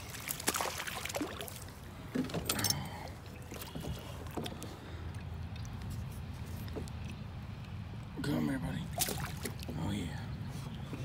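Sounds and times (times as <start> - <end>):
fish splashing at surface: 0.0 - 1.7
water and handling noise: 0.0 - 8.1, 8.8 - 11.0.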